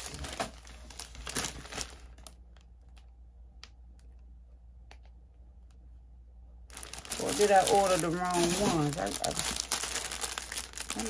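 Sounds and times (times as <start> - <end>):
plastic packaging crinkling: 0.0 - 3.1, 6.7 - 11.0.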